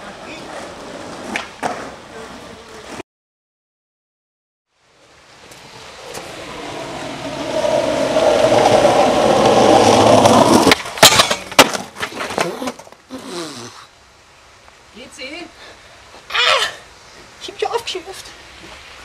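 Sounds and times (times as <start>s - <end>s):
skateboard clattering in a fall: 0.0s - 3.0s, 5.5s - 13.0s
skateboard wheels rolling on asphalt: 0.0s - 3.0s, 4.9s - 14.0s.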